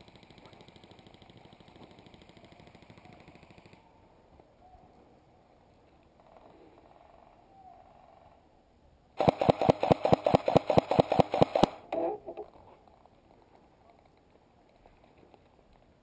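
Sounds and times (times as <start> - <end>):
airsoft rifle rapid fire: 9.2 - 12.0.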